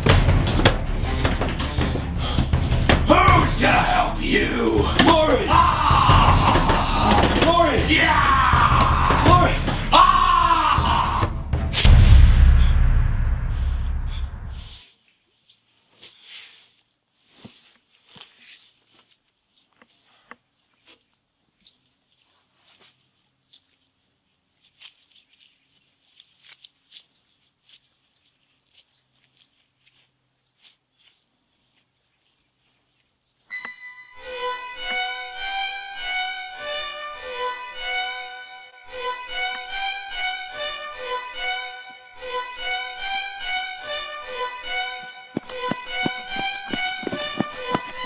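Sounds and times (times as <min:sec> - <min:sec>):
violin melody over pulsing beat: 0:00.1 - 0:04.2, 0:33.5 - 0:48.0
faint insect drone: 0:13.2 - 0:33.6.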